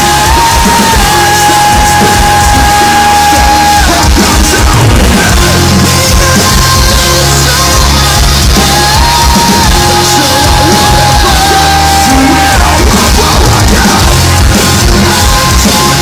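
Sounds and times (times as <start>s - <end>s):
metal band playing live: 0.0s - 16.0s
person yelling vocals: 8.7s - 14.2s.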